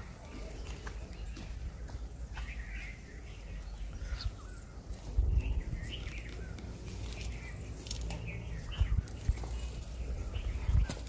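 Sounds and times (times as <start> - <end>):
small birds chirping: 0.0 - 11.0
wind rumble on microphone: 3.8 - 11.0.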